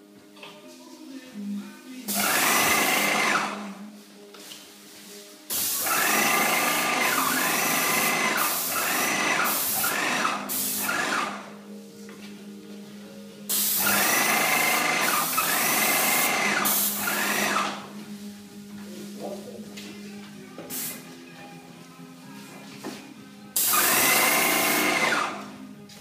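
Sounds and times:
paint spray gun hissing: 5.5 - 10.9, 13.5 - 17.6.

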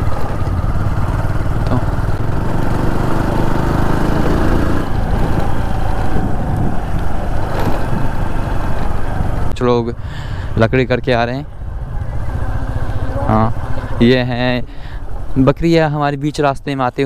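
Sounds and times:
motorcycle engine running: 0.0 - 9.5, 11.5 - 15.2.

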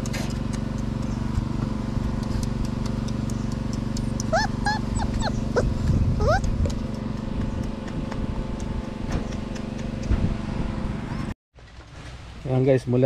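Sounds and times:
water pump engine humming: 0.0 - 11.1
puppy whimpering: 3.9 - 6.8.

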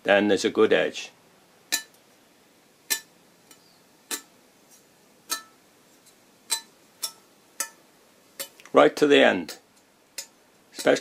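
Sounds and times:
sickle blade ringing tick: 6.5 - 7.8, 10.2 - 11.0.

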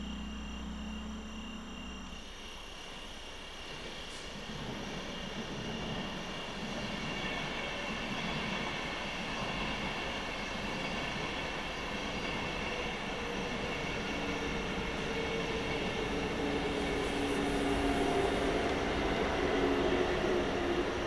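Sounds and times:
low hum of steady tones: 0.0 - 3.6
train running: 0.0 - 21.0.

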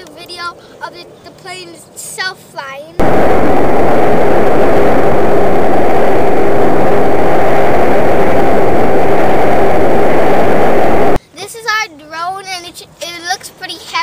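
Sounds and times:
faint hum of spinning propellers: 0.0 - 11.3
rush of wind: 2.9 - 11.2.

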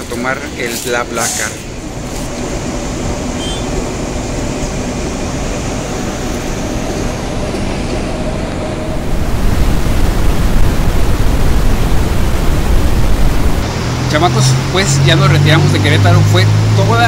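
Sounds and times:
bus engine and road noise: 0.0 - 17.0
wind rush on microphone: 4.9 - 14.0.

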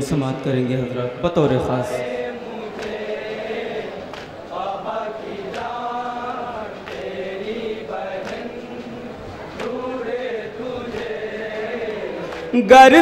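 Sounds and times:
men chanting in unison: 0.2 - 13.0.

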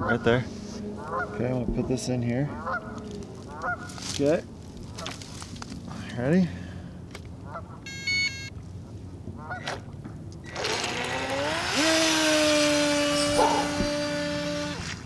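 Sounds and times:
short electronic beep: 7.9 - 8.5
electric motor whine: 10.5 - 15.0.

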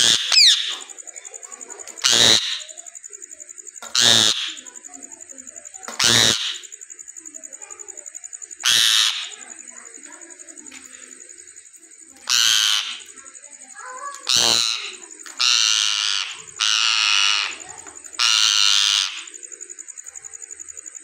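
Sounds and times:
parakeet harsh calls: 0.0 - 3.1, 3.8 - 4.9, 5.9 - 7.2, 8.5 - 9.6, 12.2 - 19.6.

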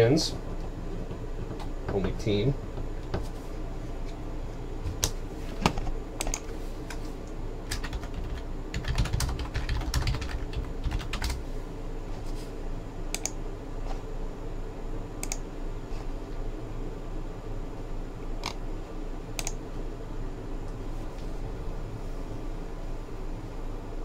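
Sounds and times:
computer keyboard typing: 7.7 - 11.4, 13.2 - 13.4.

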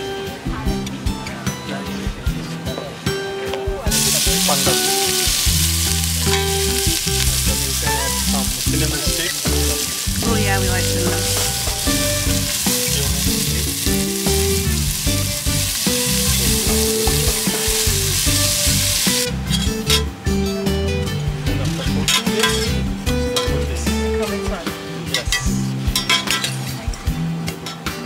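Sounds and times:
background music with bass: 0.0 - 28.0
food sizzling in a pan: 3.9 - 20.1, 21.9 - 26.8.

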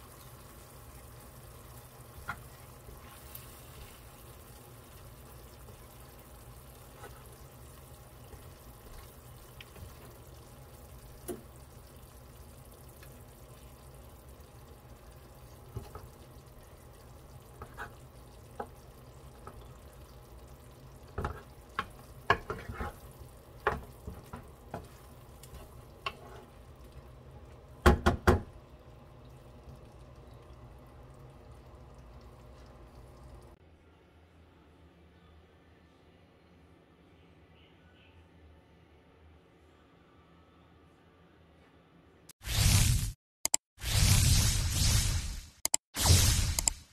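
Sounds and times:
pork sizzling in a frying pan: 0.0 - 27.2
wooden spatula scraping a pan: 6.8 - 7.4, 17.6 - 18.0, 21.2 - 23.1, 23.7 - 26.6.

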